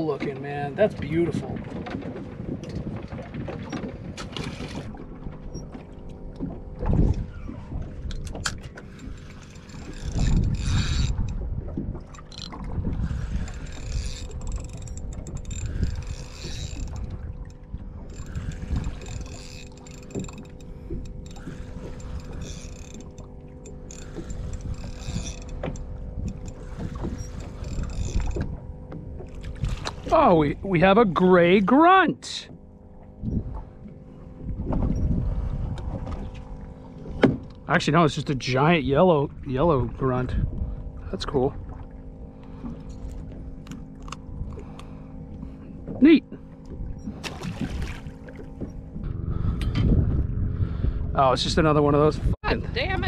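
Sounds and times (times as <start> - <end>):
fishing reel gears whirring: 4.2 - 31.6, 42.0 - 51.7, 52.4 - 53.0
low rumble: 4.8 - 31.6, 44.2 - 53.0
faint hum: 4.8 - 53.0.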